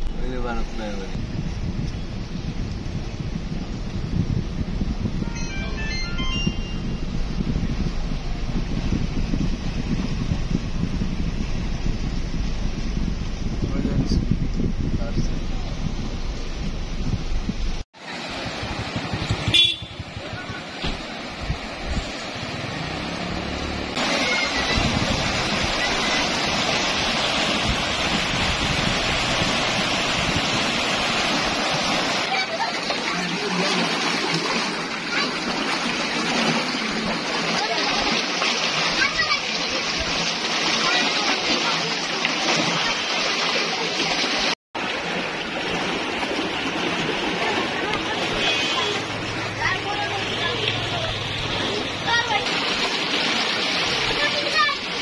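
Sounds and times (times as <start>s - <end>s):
low hum: 1.2s - 17.8s
floodwater rushing: 17.7s - 55.0s.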